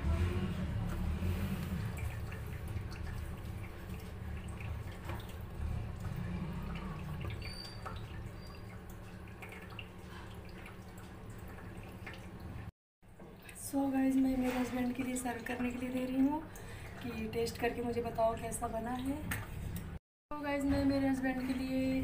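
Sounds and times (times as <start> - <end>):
curry bubbles popping: 1.0 - 12.5.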